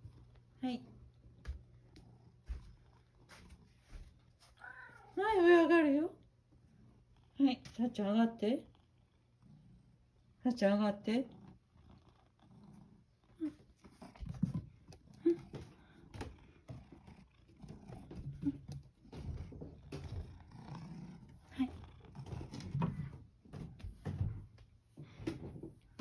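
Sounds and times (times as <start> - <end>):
footsteps on wooden stairs: 17.6 - 20.4, 22.3 - 26.0.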